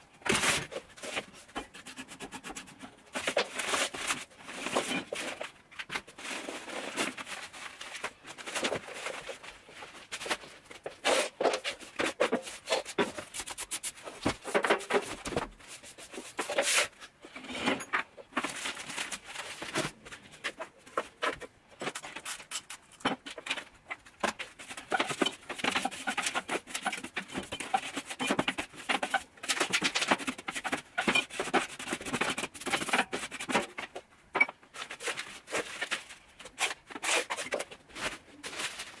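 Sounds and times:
papers rustling: 0:02.6 - 0:17.1, 0:18.3 - 0:21.6, 0:34.7 - 0:39.0
small objects clattering: 0:17.7 - 0:39.0.

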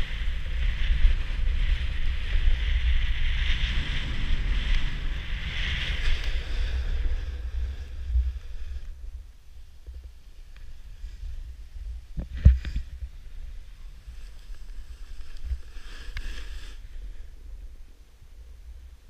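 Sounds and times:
snowboard gliding over snow: 0:00.0 - 0:19.0
wind buffeting microphone: 0:00.0 - 0:19.0
board edge scraping snow: 0:03.0 - 0:08.8, 0:13.8 - 0:17.0.

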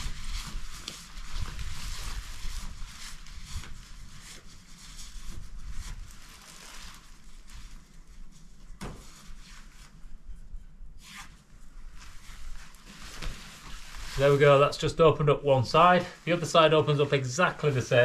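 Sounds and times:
nylon fabric rustling: 0:00.0 - 0:18.0
tent zips drawn open: 0:11.0 - 0:11.4.

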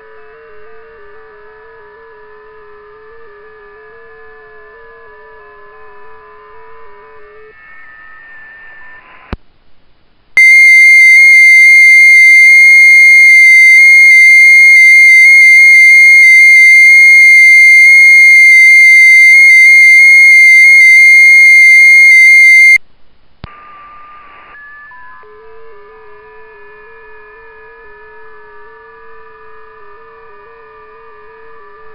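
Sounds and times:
faint overlapping radio tones: 0:00.0 - 0:09.4, 0:10.3 - 0:22.8, 0:23.4 - 0:31.9
loud distorted high tone: 0:10.4 - 0:22.8.

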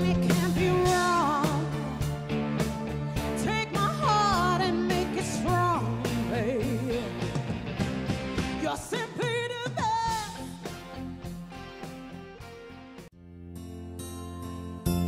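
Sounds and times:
song with singing voice: 0:00.0 - 0:10.9.

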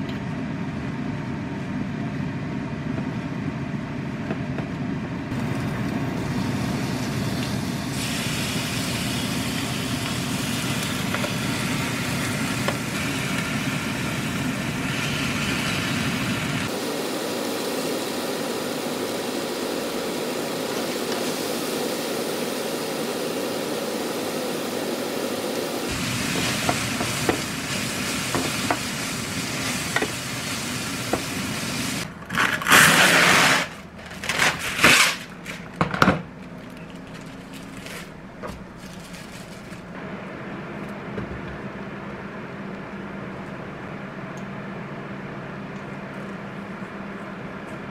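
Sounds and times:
kitchen food prep: 0:00.0 - 0:47.9
cling wrap tearing: 0:32.3 - 0:35.8, 0:36.4 - 0:40.0.

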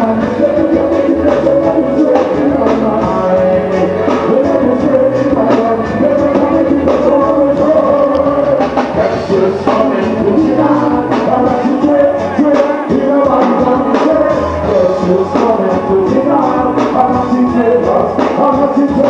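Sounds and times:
live reggae band playing: 0:00.0 - 0:19.0
man singing into a microphone: 0:00.0 - 0:19.0.

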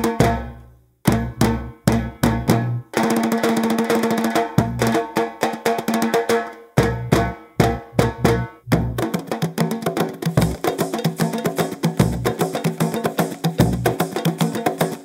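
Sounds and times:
deep drum hits: 0:06.8 - 0:09.2.

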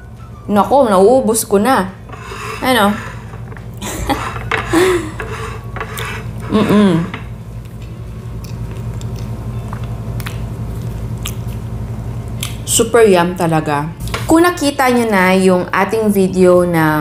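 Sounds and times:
steady low hum: 0:00.0 - 0:17.0
spoon scraping ceramic plate: 0:02.0 - 0:07.2
person humming mmm: 0:06.5 - 0:07.2
chewing: 0:07.6 - 0:11.6.

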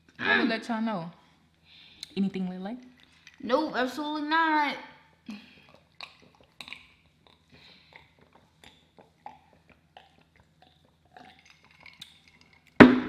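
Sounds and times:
person gulping water: 0:05.2 - 0:12.9.

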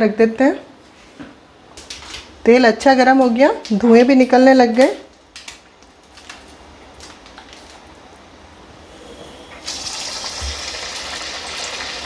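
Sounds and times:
faint hiss: 0:08.6 - 0:12.0
oil sizzling loudly: 0:09.0 - 0:12.0.

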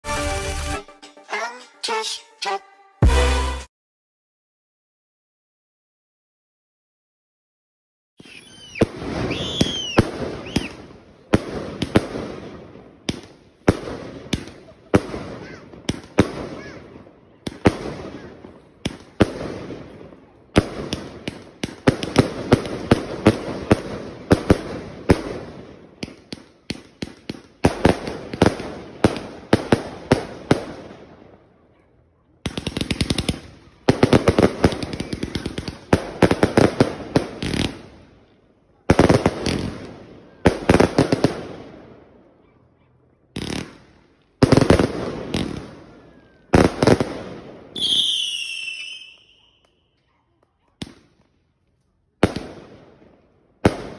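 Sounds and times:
firework volleys of sharp shots: 0:08.2 - 0:31.6, 0:32.4 - 0:42.2, 0:43.3 - 0:49.7, 0:50.5 - 0:51.3, 0:52.1 - 0:53.9.

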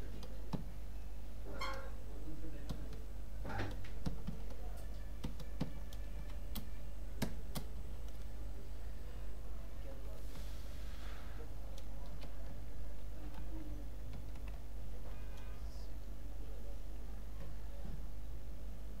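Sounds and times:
computer keyboard keystrokes: 0:03.7 - 0:04.6, 0:05.2 - 0:08.3
soft smeared noises: 0:10.1 - 0:11.5.

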